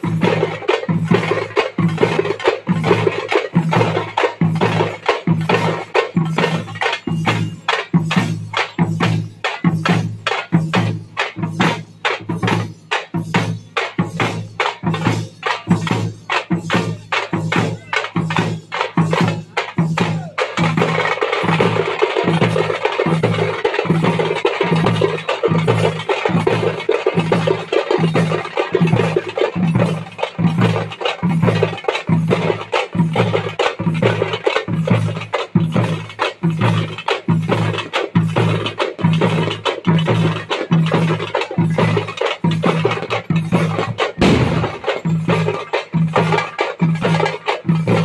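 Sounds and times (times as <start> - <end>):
frame drums beaten with sticks: 0.0 - 48.0
low drum pulse: 44.2 - 45.3.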